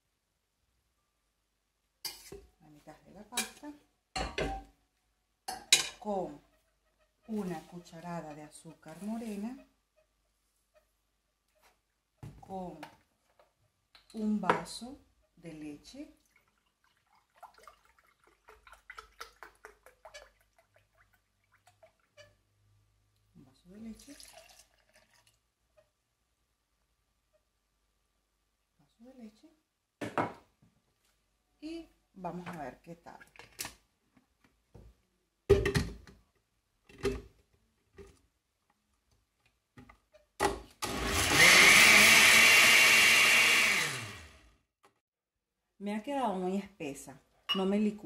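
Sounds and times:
milk pouring into glass: 16.2s - 22.0s, 24.0s - 25.4s
blender motor whining: 40.8s - 44.4s.

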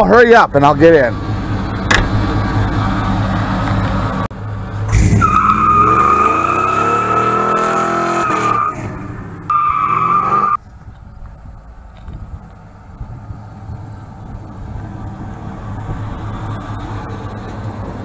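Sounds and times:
road noise: 0.0s - 18.0s
truck engine revving: 0.8s - 10.6s.

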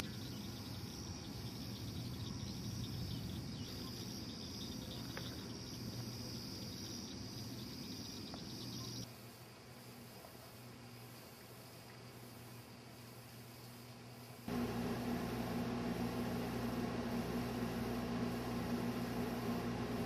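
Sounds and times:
crickets trilling: 0.0s - 14.5s
low steady hum: 14.5s - 20.0s.

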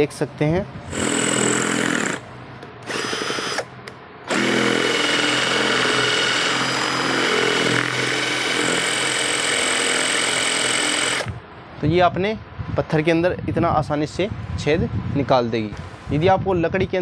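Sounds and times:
drill boring into stone: 0.9s - 2.2s, 2.8s - 3.7s, 4.3s - 11.4s.

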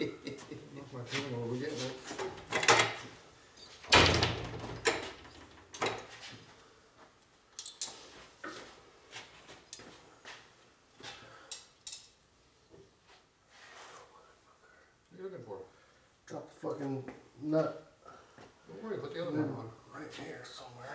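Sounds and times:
metal tools clicking and clanking: 7.6s - 8.0s, 11.5s - 12.2s.

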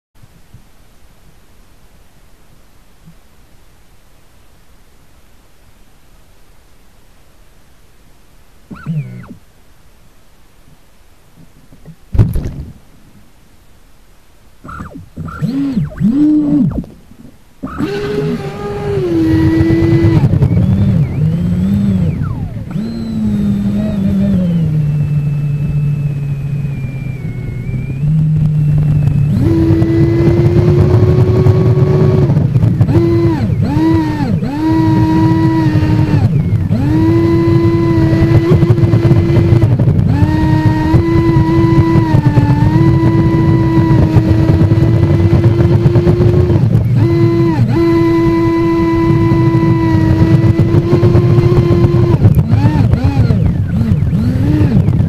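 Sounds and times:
model boat motor whine: 8.7s - 9.4s, 14.6s - 55.0s.

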